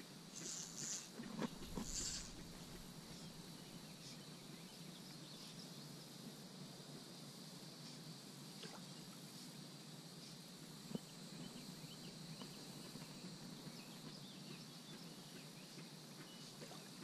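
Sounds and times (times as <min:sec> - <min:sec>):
steady high-pitched hiss: 0:00.0 - 0:17.0
faint ticks: 0:00.3 - 0:03.3.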